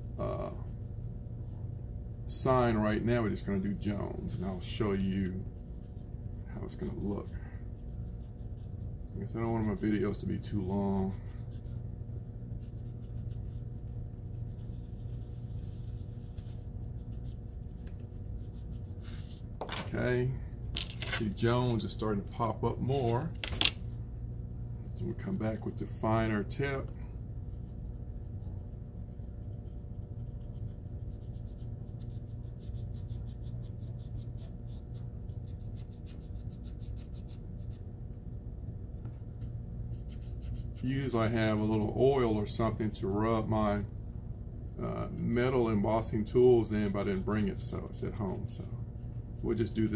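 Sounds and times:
steady low hum: 0.0s - 49.9s
scratchy rubbing on foil tape: 28.7s - 37.8s, 39.9s - 41.9s.

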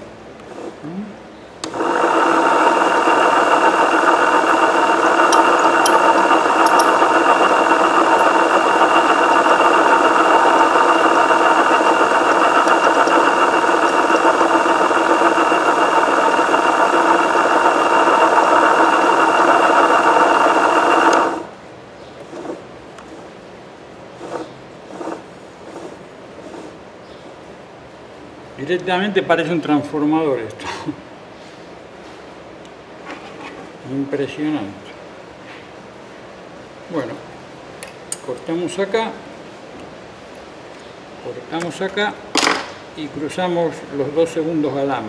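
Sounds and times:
electric motor whining: 1.6s - 21.5s.

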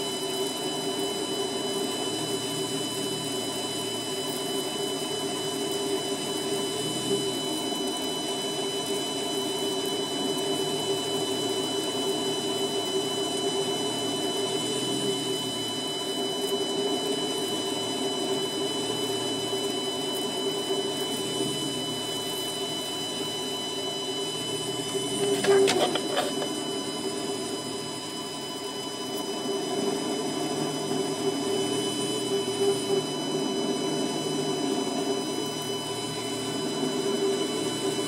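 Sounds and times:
lathe cutting metal: 24.8s - 27.1s.

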